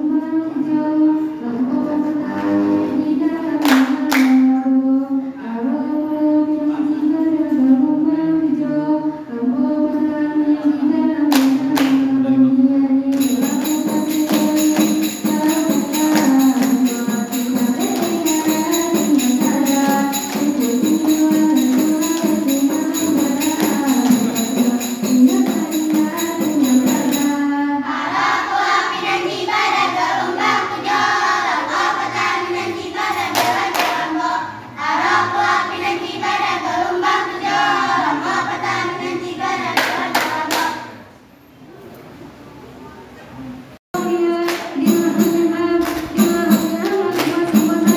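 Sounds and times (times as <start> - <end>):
voices singing in unison: 0.0 - 41.1, 44.0 - 47.9
rhythmic hand claps and body slaps: 3.6 - 4.4, 11.3 - 12.1, 13.1 - 27.2, 33.1 - 34.1, 39.8 - 40.8, 44.4 - 47.9.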